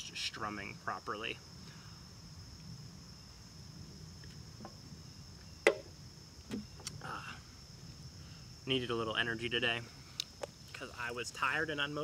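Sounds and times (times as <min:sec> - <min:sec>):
insects chirring: 0:00.0 - 0:12.0
soft knocks: 0:05.6 - 0:05.9.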